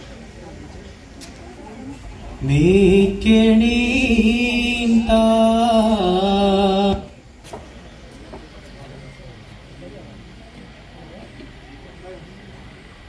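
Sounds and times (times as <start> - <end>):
person chanting long held notes: 2.4 - 7.2.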